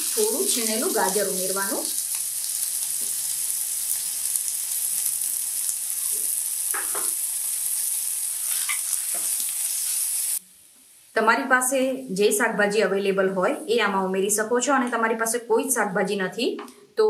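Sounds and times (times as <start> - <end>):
vegetables sizzling in hot oil: 0.0 - 11.8.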